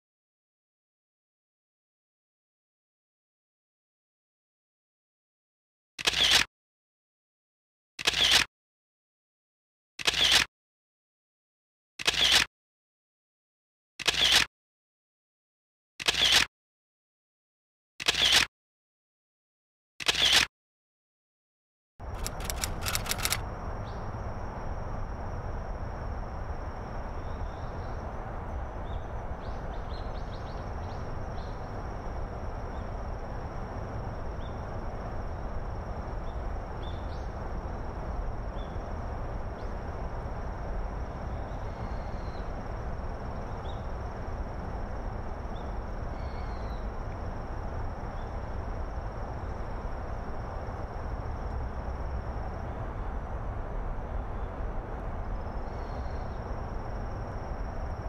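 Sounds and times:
run of clicks: 10.0s - 10.5s, 22.1s - 23.4s
high insect trill: 22.0s - 53.0s, 55.2s - 58.0s.

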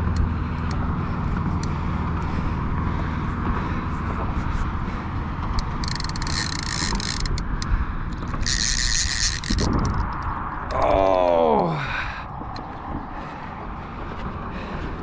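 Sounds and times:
wind buffeting microphone: 0.0s - 15.0s
fishing reel clicker buzzing: 5.5s - 10.8s.

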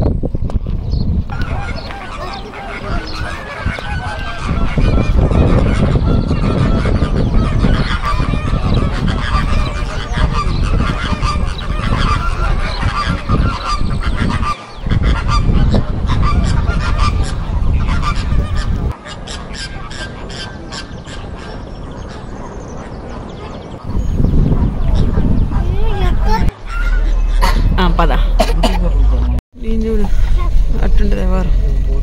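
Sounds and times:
geese honking: 1.3s - 24.0s, 26.5s - 29.4s
heavy low rumble: 23.9s - 32.0s.

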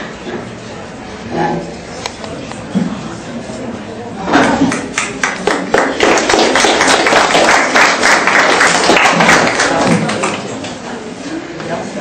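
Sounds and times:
audience applause: 4.7s - 10.8s.

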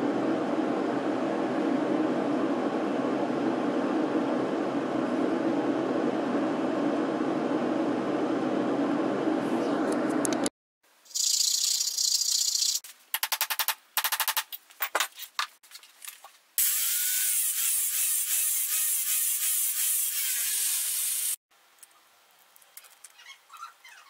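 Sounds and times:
angle grinder cutting steel: 16.6s - 21.4s.

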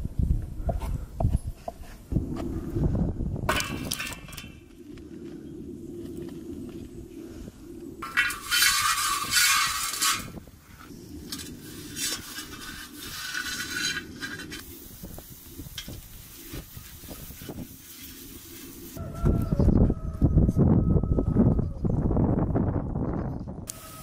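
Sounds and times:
cooking hiss: 10.7s - 19.0s.

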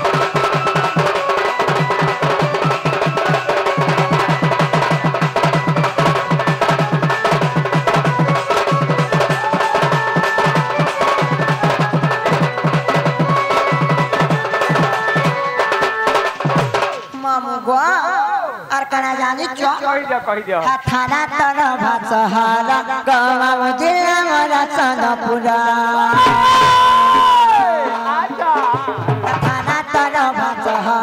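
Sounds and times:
barrel drum: 0.0s - 17.4s, 26.1s - 31.0s
small stick-beaten drums: 0.0s - 18.1s, 18.7s - 31.0s.

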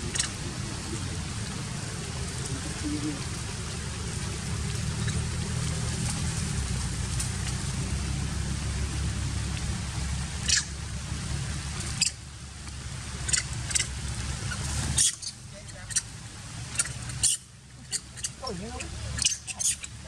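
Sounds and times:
wind rumble on microphone: 0.0s - 19.2s
monkey squeaks: 15.0s - 16.1s, 16.8s - 18.5s, 19.1s - 20.0s.

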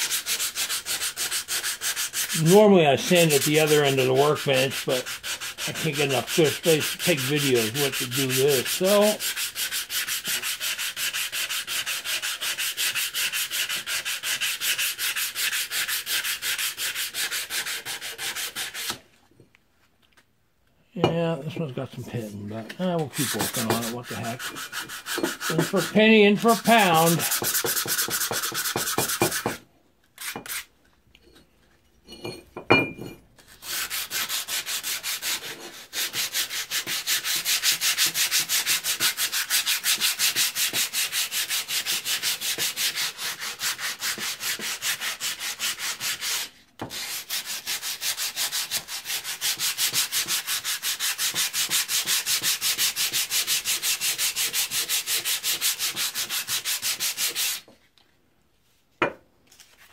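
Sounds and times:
sandpaper rubbing on metal: 0.0s - 19.0s, 22.2s - 29.6s, 30.2s - 30.7s, 33.5s - 57.6s
knock with faint ring: 32.2s - 33.2s.

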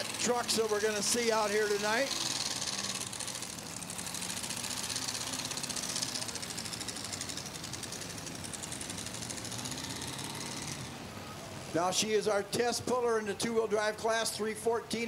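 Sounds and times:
racing engine at high revs: 0.0s - 11.8s.

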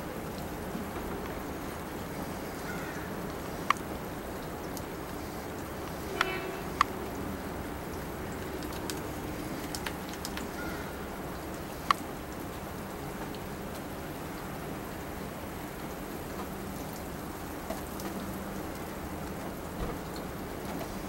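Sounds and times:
rain pattering: 0.0s - 21.0s.

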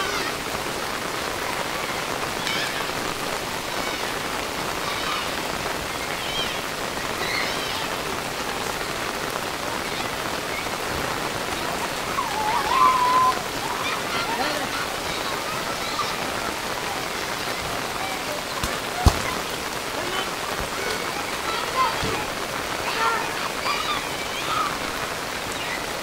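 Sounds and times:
heavy rain splashing into water: 0.0s - 26.0s.

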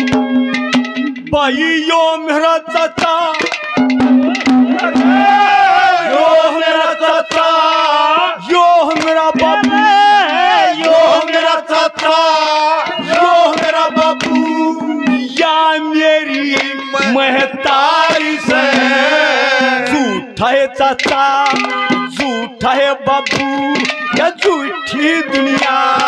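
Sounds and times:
hand drum strokes: 0.0s - 1.4s, 2.8s - 6.2s, 8.8s - 11.4s, 12.8s - 15.5s, 21.0s - 22.4s, 23.2s - 24.6s
man singing: 1.3s - 3.6s, 6.0s - 26.0s
sustained instrumental notes: 3.5s - 26.0s.

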